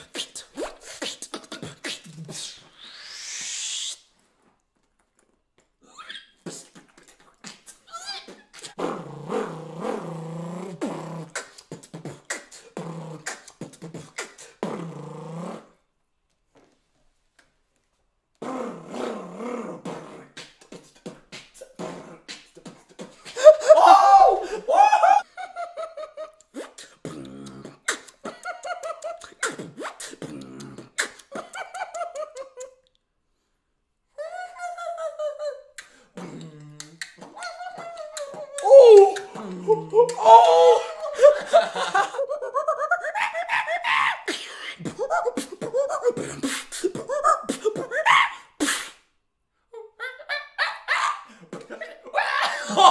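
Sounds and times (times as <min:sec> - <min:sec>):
mouth clicks and pops: 0:05.1 - 0:15.6, 0:19.8 - 0:23.4, 0:26.4 - 0:33.1, 0:35.7 - 0:40.3
beatboxer laugh-like vocal bursts: 0:10.8 - 0:14.8, 0:19.8 - 0:23.8, 0:24.4 - 0:32.8, 0:34.2 - 0:49.0, 0:50.5 - 0:52.9.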